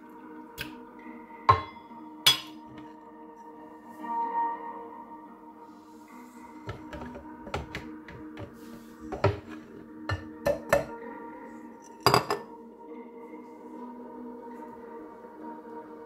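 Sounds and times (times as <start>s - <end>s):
soft background music: 0.0s - 16.0s
kitchenware knocking blender jar: 1.5s - 2.8s, 6.7s - 8.5s, 9.1s - 10.9s.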